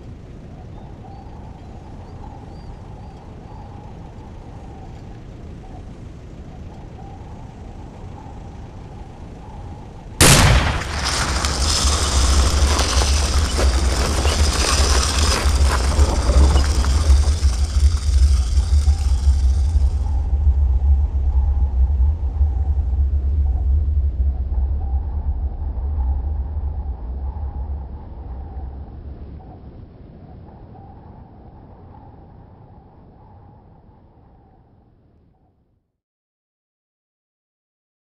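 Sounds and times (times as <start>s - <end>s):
sustained rumble: 0.0s - 34.6s
faint low ambience: 0.0s - 35.8s
loud boom: 10.2s - 20.3s.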